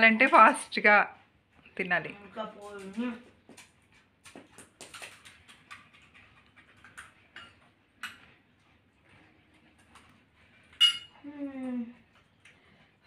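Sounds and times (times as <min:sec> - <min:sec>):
spoons tapping and scraping bowls: 0:03.5 - 0:08.3, 0:10.7 - 0:11.2.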